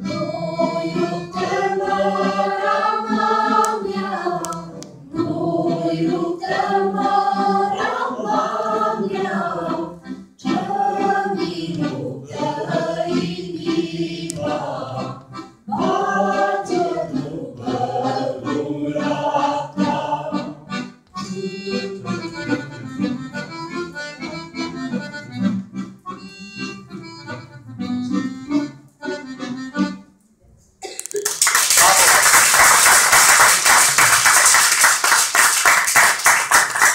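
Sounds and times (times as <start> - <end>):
girls singing together: 0.0 - 20.7
accordion playing quick notes: 17.8 - 30.1.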